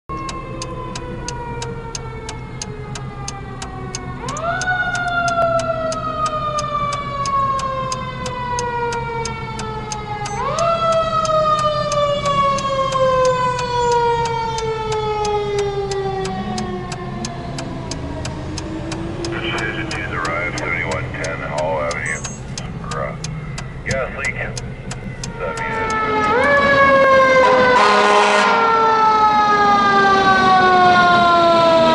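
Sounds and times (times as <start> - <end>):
steady clicking: 0.1 - 26.6
fire engine siren wailing: 0.1 - 31.9.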